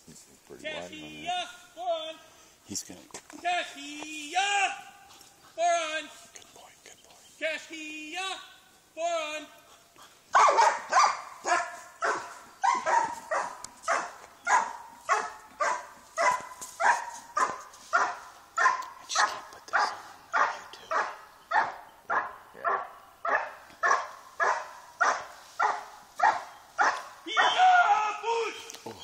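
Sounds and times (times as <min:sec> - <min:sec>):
dog barking: 0:10.3 - 0:27.7.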